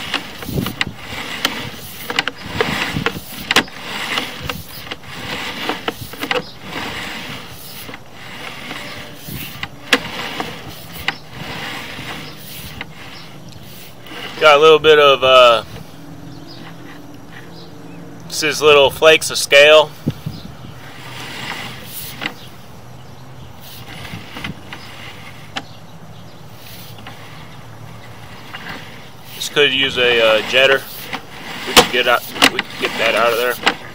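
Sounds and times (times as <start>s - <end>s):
cable scraping in pipe: 0.0s - 33.9s
low mechanical hum: 0.0s - 33.9s.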